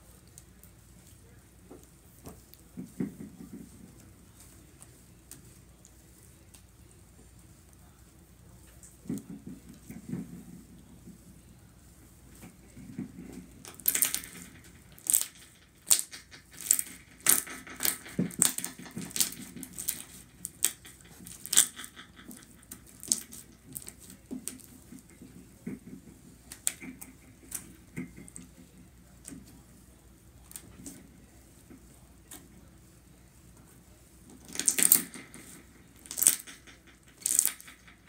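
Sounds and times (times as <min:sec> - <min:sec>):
hands squeezing slime: 0:36.0 - 0:36.5.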